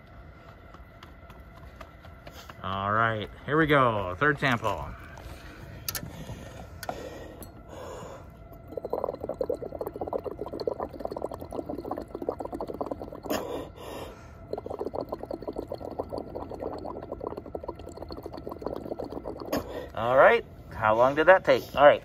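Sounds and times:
bubbling through a straw: 0:07.7 - 0:20.1.

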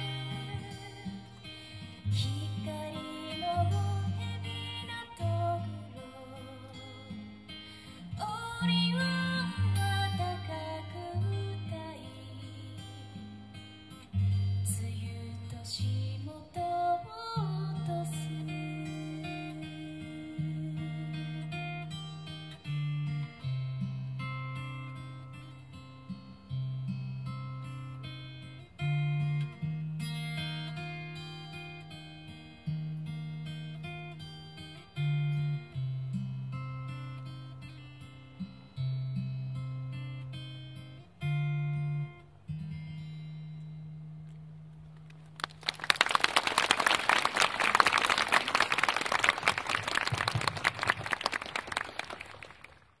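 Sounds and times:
acoustic guitar plucked notes: 0:00.0 - 0:45.3
audience applause: 0:45.4 - 0:52.9.

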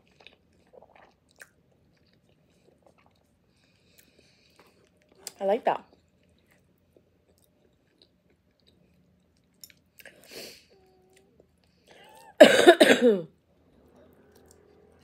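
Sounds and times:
chewing mouth sounds: 0:00.0 - 0:10.2
woman coughing: 0:12.4 - 0:13.3.

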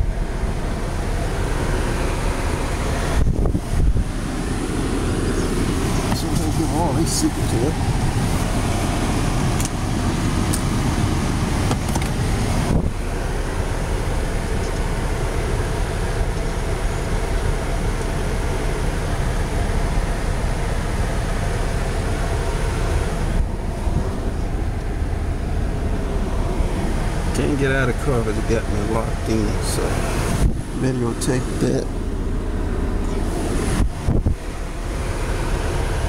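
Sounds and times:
car engine idling: 0:00.0 - 0:36.0.

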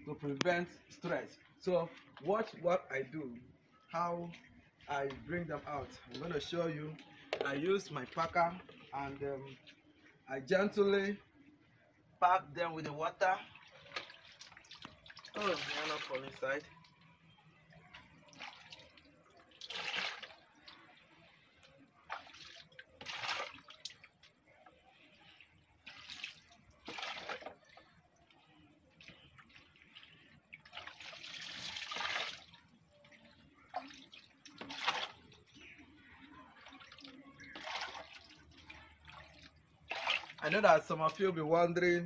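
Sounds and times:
water sloshing and splashing: 0:13.0 - 0:41.3.

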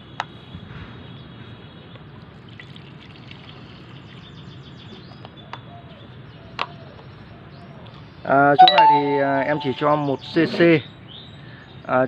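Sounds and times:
liquid trickling into plastic mug: 0:02.5 - 0:04.2.

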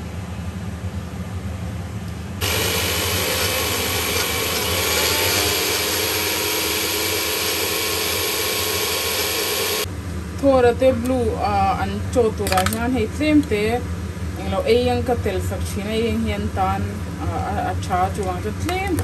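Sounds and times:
electric spice grinder running: 0:02.4 - 0:09.9.

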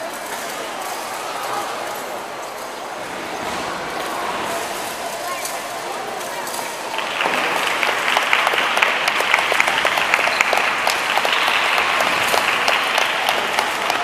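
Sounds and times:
audience applauding: 0:06.9 - 0:14.0.

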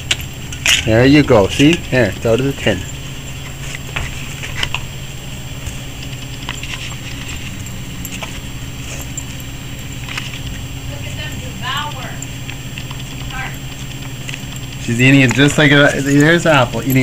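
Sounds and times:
steady low hum: 0:00.0 - 0:17.0
small metallic clinks: 0:05.6 - 0:17.0.

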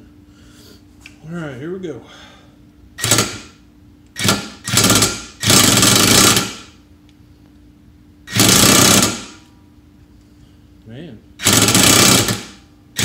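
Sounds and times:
impact wrench hammering: 0:03.0 - 0:03.6, 0:04.2 - 0:06.8, 0:08.3 - 0:09.5, 0:11.4 - 0:13.0.

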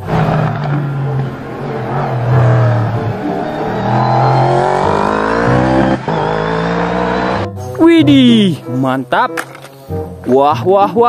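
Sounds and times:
race car engine at high revs: 0:00.0 - 0:07.5.

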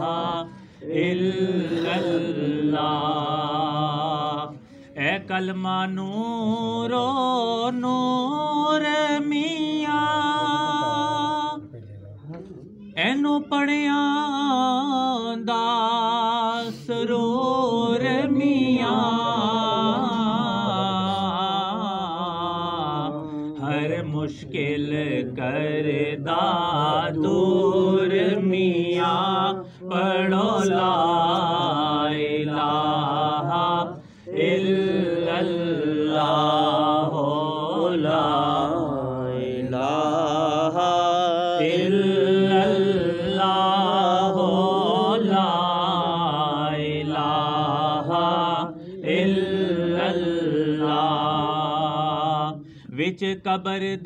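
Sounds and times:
person chanting melodically: 0:00.0 - 0:54.0.

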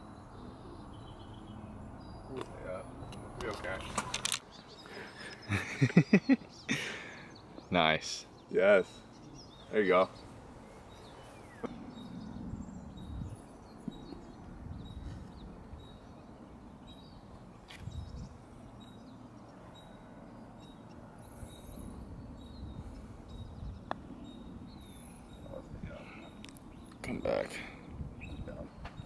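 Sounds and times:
faint bird chirps: 0:08.4 - 0:29.0
wind rumble on microphone: 0:10.2 - 0:18.6, 0:21.3 - 0:27.0, 0:27.8 - 0:29.0.

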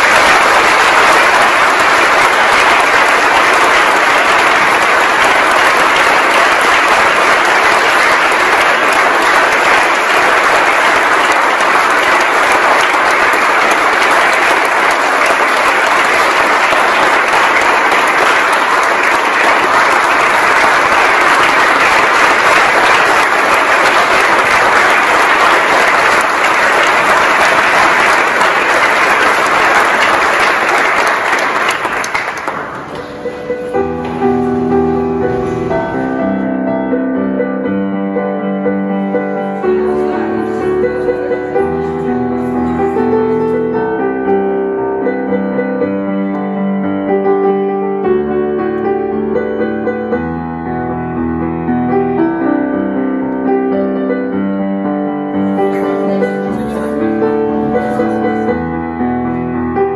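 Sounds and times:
large audience applauding: 0:00.0 - 0:36.3, 0:39.1 - 0:43.9, 0:55.4 - 0:58.7.

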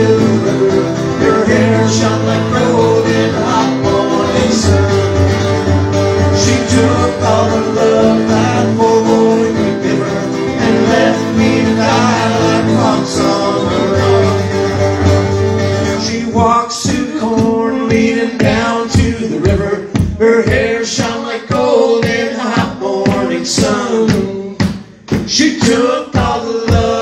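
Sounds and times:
bass line: 0:00.0 - 0:20.9
acoustic guitars strumming: 0:00.0 - 0:27.0.

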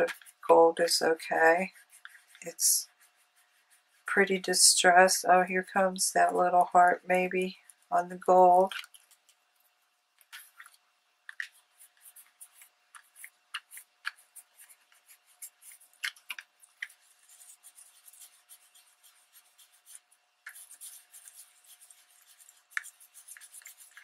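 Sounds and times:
cloth rubbing on paper: 0:00.0 - 0:04.4, 0:11.4 - 0:24.0.

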